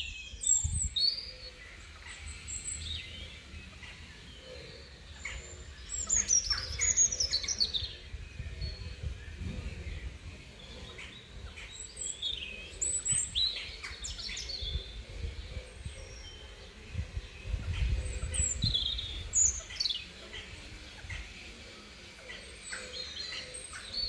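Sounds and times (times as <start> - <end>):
small birds chirping: 0.0 - 24.0
low rumble on microphone: 7.5 - 11.6, 12.5 - 19.6.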